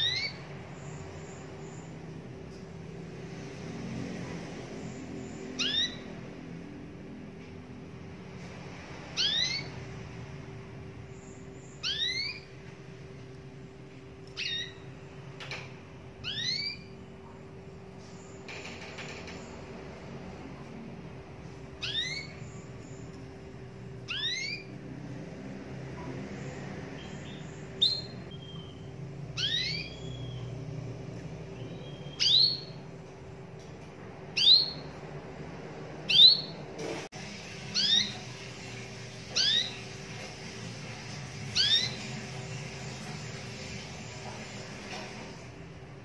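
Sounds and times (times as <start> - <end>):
canary rising whistle calls: 5.6 - 6.1, 9.2 - 9.7, 11.7 - 12.5, 16.2 - 17.0, 21.8 - 22.5, 24.1 - 24.7, 29.4 - 30.5, 37.7 - 39.9, 41.5 - 42.8.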